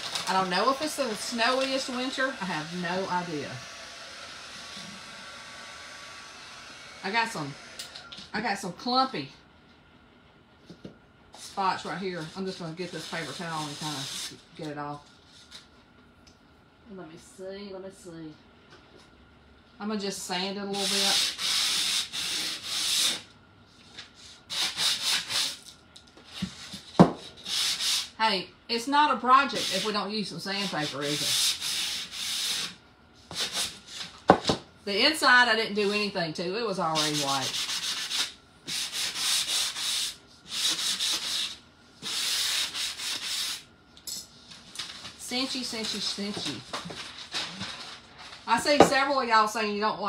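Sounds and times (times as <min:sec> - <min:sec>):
sanding block scratching wood: 0:20.8 - 0:23.2, 0:30.6 - 0:32.7, 0:37.0 - 0:43.6.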